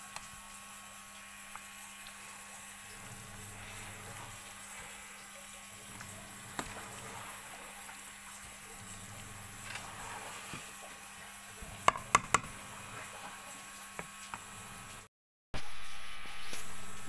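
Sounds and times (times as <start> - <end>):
spoon knocking against basin: 11.8 - 12.6.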